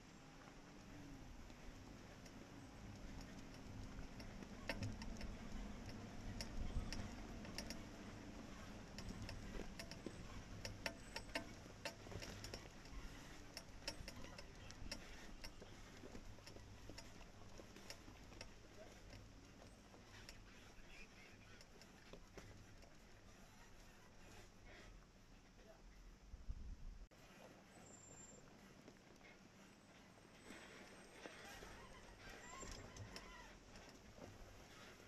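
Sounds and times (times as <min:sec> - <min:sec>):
off-road vehicle low rumble: 0:00.0 - 0:35.0
clicks and ticks: 0:01.5 - 0:23.0.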